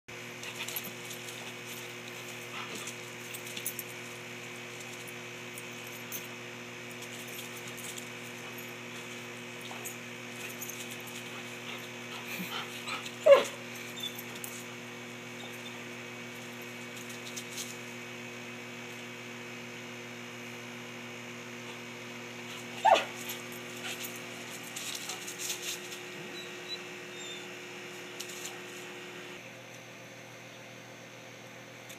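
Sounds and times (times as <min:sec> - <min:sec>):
dog crying out: 0:13.2 - 0:14.2, 0:22.8 - 0:23.2.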